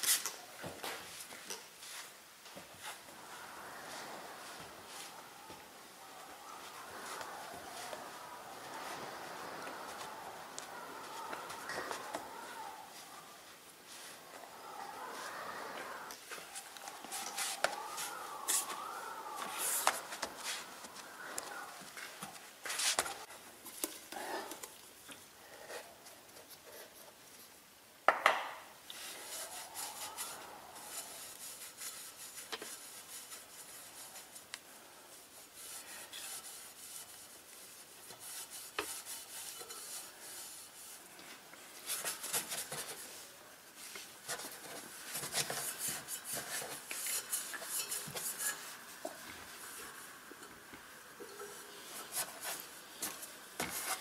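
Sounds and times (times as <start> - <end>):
cloth wiping glass: 1.1 - 23.3, 28.9 - 54.0
rag polishing metal: 35.5 - 41.0, 44.3 - 48.8.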